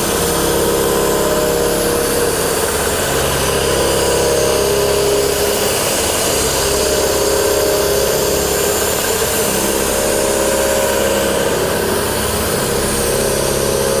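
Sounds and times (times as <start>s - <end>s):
boring mill mechanical hum: 0.0s - 14.0s
machine whine: 0.0s - 14.0s.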